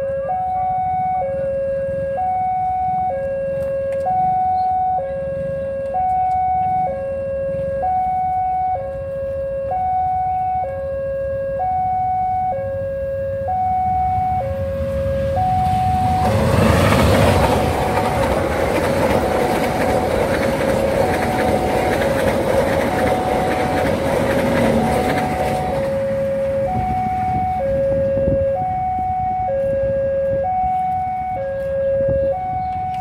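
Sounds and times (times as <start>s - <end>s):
passing train rumble and clatter: 0.0s - 33.0s
two-tone crossing alarm chime: 4.0s - 16.3s, 22.9s - 33.0s.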